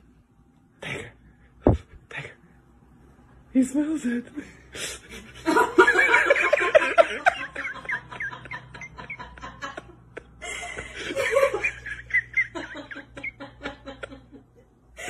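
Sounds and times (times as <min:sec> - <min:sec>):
people laughing: 0:05.0 - 0:14.6.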